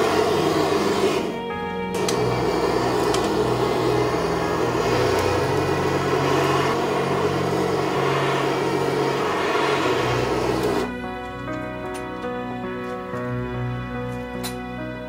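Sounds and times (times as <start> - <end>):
blowtorch flame hissing: 0.0 - 11.6.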